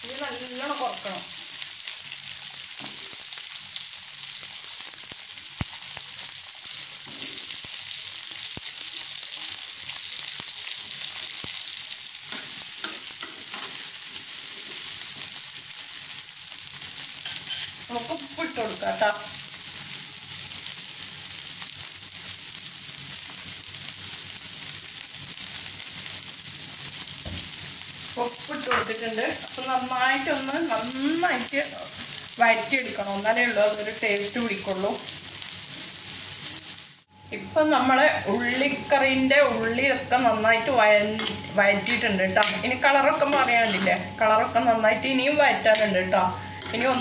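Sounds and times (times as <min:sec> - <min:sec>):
shallots sizzling in hot oil: 0:00.0 - 0:47.0
spoon scraping clay pot: 0:17.3 - 0:17.8, 0:43.3 - 0:44.0, 0:46.4 - 0:47.0.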